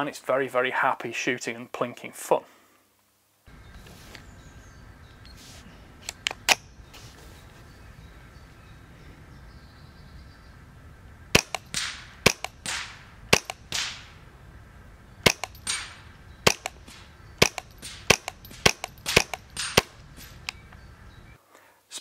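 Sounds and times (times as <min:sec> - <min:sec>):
suppressed rifle shots: 0:11.3 - 0:14.2, 0:15.2 - 0:20.4.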